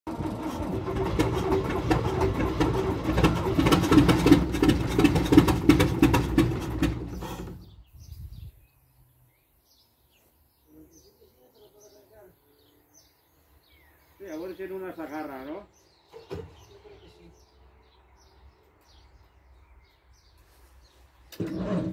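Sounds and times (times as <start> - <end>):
diesel truck engine clattering: 0.1 - 7.9.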